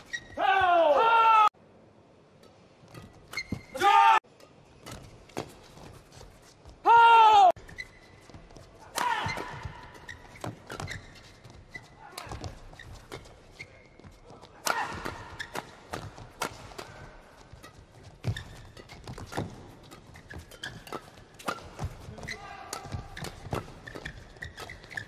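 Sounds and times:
rackets hitting shuttlecock: 14.6 - 25.0.

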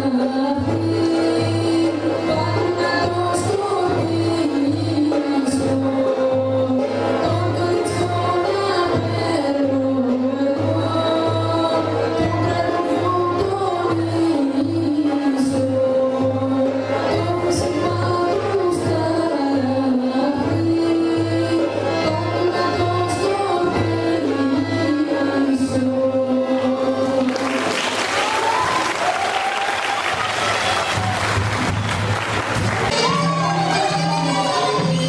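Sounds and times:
folk song sung with instruments: 0.0 - 29.6
audience applause: 27.2 - 34.8.

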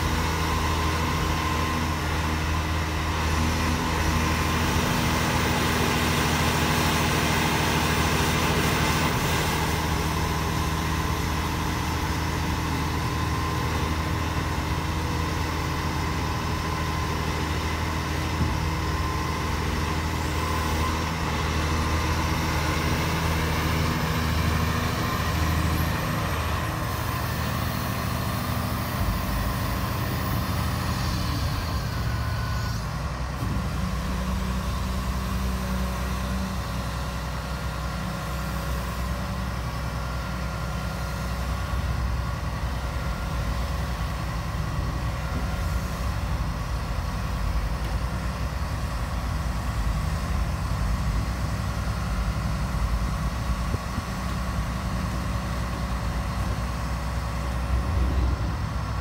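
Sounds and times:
diesel excavator engine running: 0.0 - 59.0
hydraulic whine: 0.0 - 59.0.

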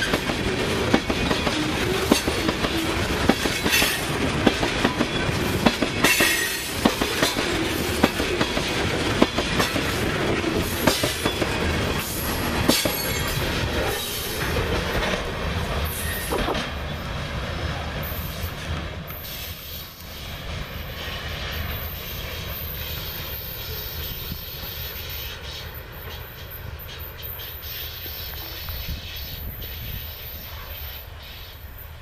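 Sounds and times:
train wheels clacking over rail: 0.0 - 17.0
train rumble: 0.0 - 32.0.

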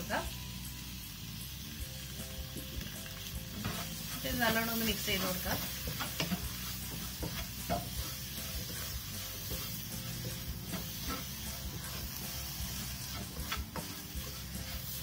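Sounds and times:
food sizzling in frying pan: 0.0 - 15.0
wooden spatula scraping pan: 3.5 - 15.0
spatula knocking against pan: 5.5 - 12.1.

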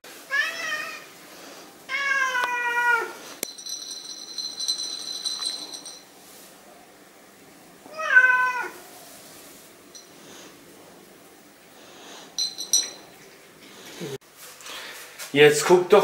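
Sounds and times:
cat meowing: 0.3 - 1.1, 1.9 - 3.2, 7.9 - 8.8.

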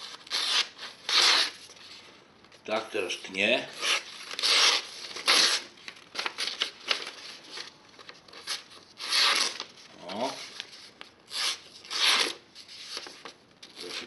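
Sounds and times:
paper rustling and crinkling: 4.2 - 11.1.

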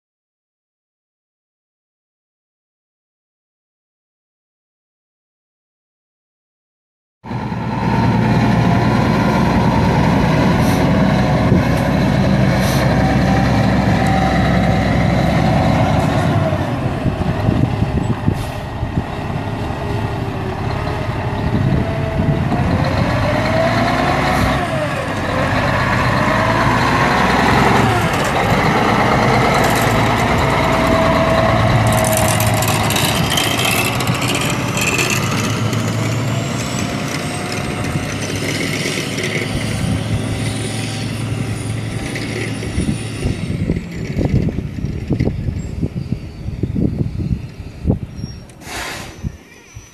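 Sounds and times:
truck diesel engine running: 7.3 - 45.8.

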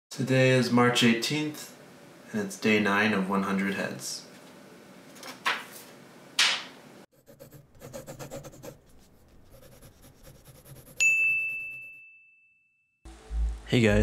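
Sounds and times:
pencil scratching on paper: 7.1 - 11.8.

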